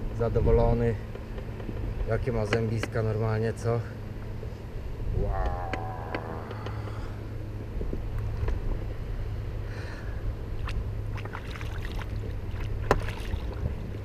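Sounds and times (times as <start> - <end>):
steady low rumble: 0.0 - 14.0
small knocks and ticks: 1.1 - 3.1
water slapping against boat: 10.5 - 14.0.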